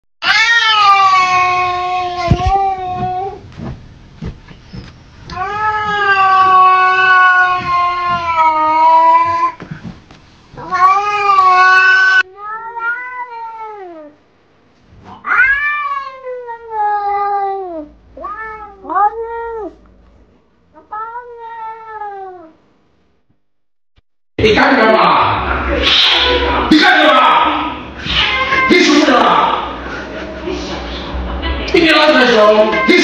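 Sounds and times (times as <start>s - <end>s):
cat yowling: 0.2s - 2.8s, 5.4s - 9.6s, 10.6s - 14.2s, 15.2s - 19.8s, 20.8s - 22.6s, 28.0s - 28.8s
cats meowing: 0.2s - 3.4s, 5.3s - 9.6s, 10.6s - 14.2s, 15.1s - 19.8s, 20.8s - 22.5s, 27.5s - 29.0s.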